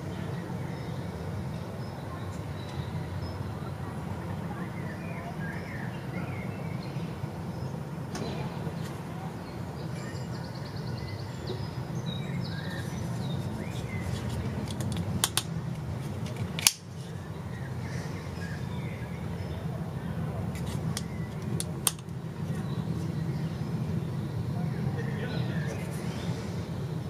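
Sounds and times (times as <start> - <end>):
low outdoor rumble: 11.3 - 27.0
folding knife clicks: 16.6 - 16.8, 20.9 - 22.1.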